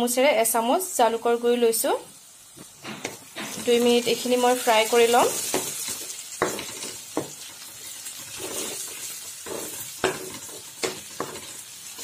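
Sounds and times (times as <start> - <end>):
onions sizzling in hot oil: 0.0 - 12.0
spatula scraping pan: 2.8 - 12.0.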